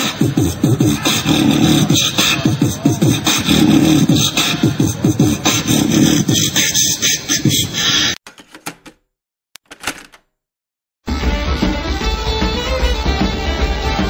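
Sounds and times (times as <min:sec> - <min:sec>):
beatboxing: 0:00.0 - 0:08.2.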